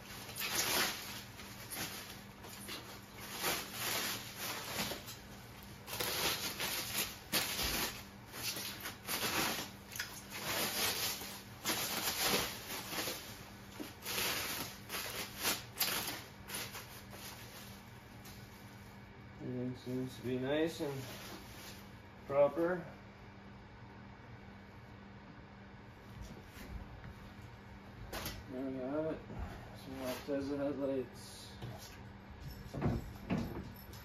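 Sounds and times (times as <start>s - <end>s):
plastic wrap crinkling: 0.0s - 18.9s.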